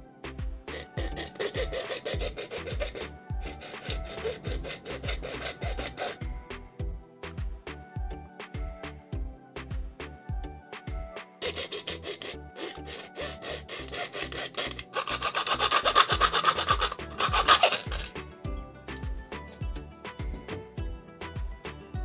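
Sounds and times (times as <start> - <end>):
music with steady beat: 0.0 - 22.0
hacksaw sawing plastic pipe: 0.7 - 6.4, 11.4 - 18.2.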